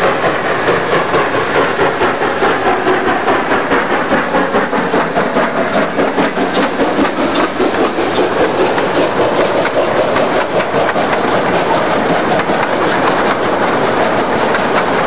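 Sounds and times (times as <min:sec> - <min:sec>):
train rumbling past: 0:00.0 - 0:15.0
wheels clicking over rail joints: 0:00.0 - 0:15.0.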